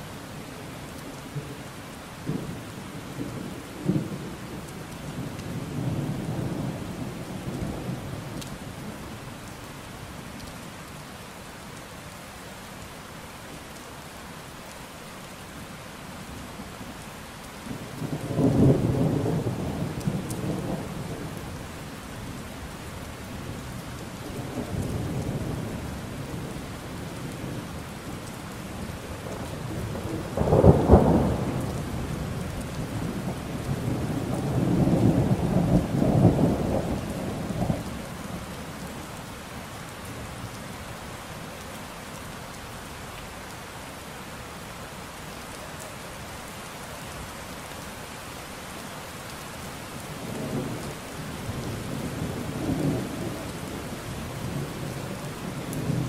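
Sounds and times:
steady rain: 0.0 - 56.0
thunder rumbling: 29.1 - 32.1.

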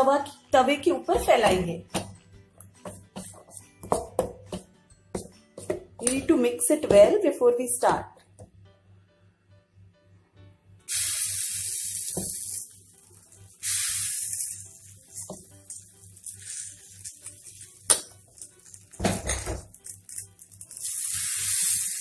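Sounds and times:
batter sizzling on hot griddle: 10.9 - 22.0.

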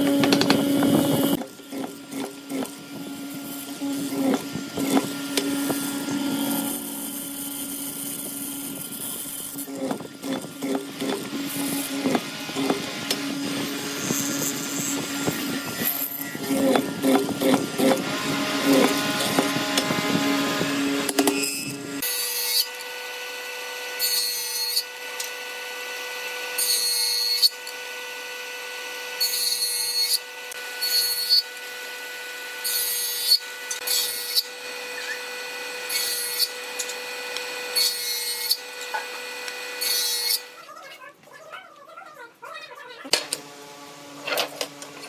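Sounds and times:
mortising machine hum: 0.0 - 40.8
table saw cutting wood: 0.0 - 40.8, 43.1 - 45.0.

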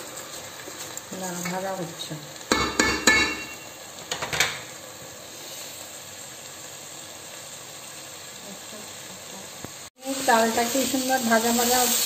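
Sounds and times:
rice sizzling in oil: 0.0 - 12.0
wooden spatula knocking metal pot: 2.5 - 3.6.

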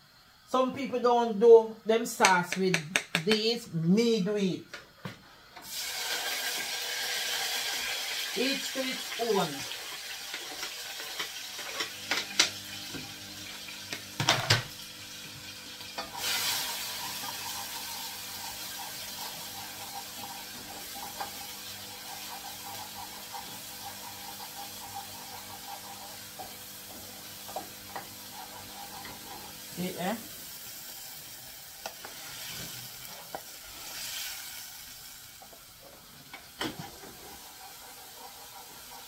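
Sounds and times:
vegetables sizzling in oil: 5.5 - 39.0
wooden spoon stirring pan: 35.4 - 39.0.

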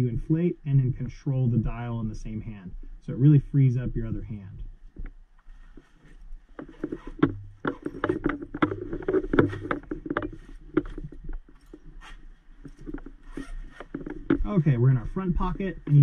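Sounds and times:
low steady hum: 0.0 - 16.0
clicks knocks and rustling: 5.0 - 14.5.

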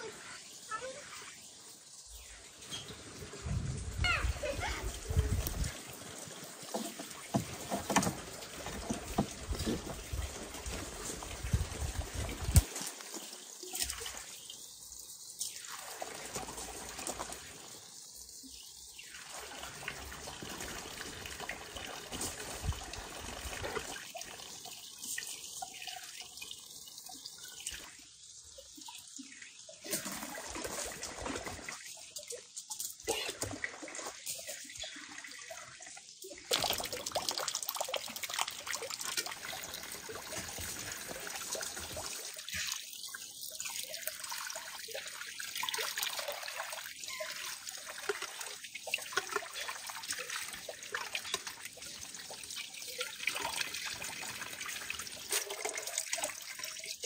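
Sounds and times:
running water: 0.0 - 57.0
water splashes and drips: 0.0 - 57.0.

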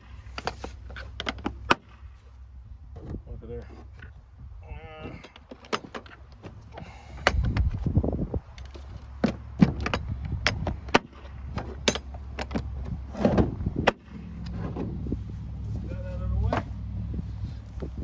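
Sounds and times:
tools knocking and clicking: 5.2 - 7.8, 8.5 - 12.9.

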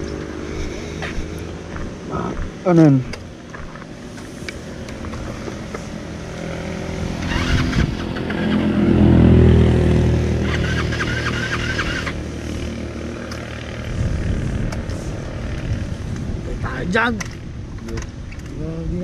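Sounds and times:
vehicle engine passing by: 4.0 - 16.6.

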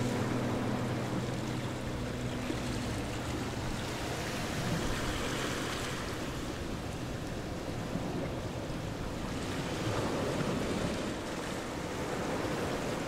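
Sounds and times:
steady rushing noise: 0.0 - 7.9
low steady tones: 0.0 - 8.0.

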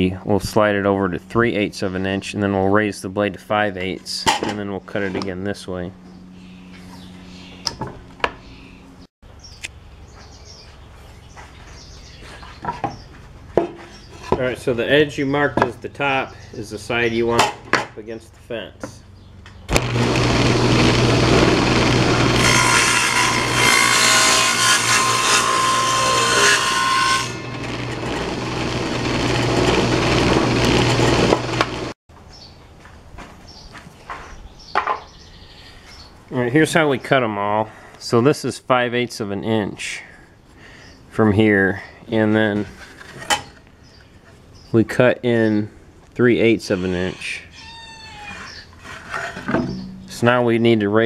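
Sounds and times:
saw blade running freely: 19.7 - 32.0
table saw cutting wood: 19.7 - 32.0, 46.6 - 49.8.

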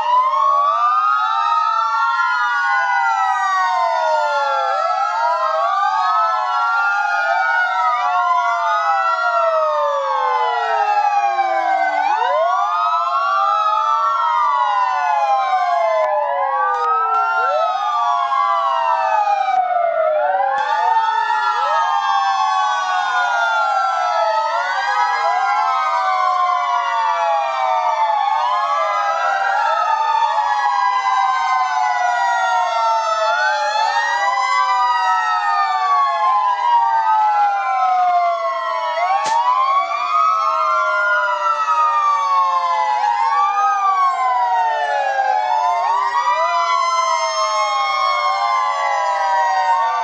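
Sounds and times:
fire engine sirens wailing: 0.0 - 50.0
sharp click: 39.2 - 39.4.

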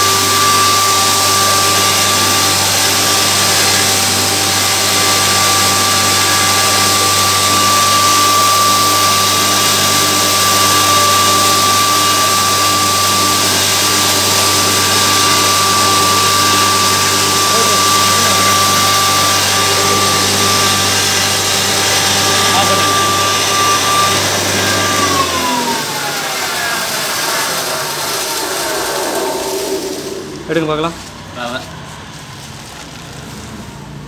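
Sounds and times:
grain mill grinding: 0.0 - 33.6.

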